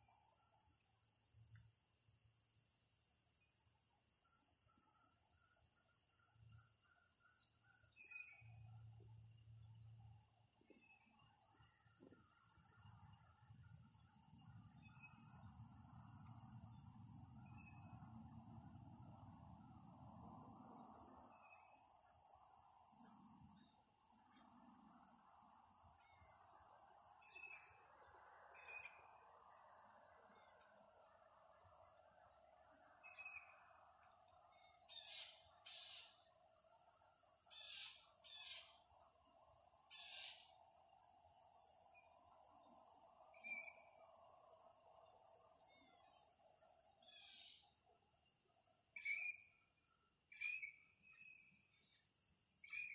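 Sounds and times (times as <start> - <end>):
faint bird chirps: 3.4 - 52.9.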